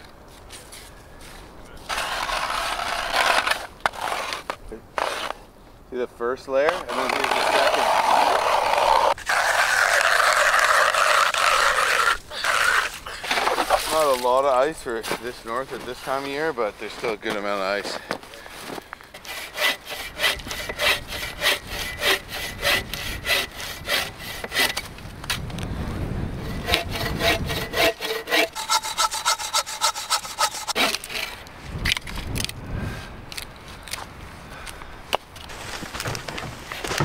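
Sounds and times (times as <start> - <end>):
bow saw cutting through log: 1.9 - 5.4, 6.7 - 14.3, 19.1 - 24.9, 26.4 - 31.5.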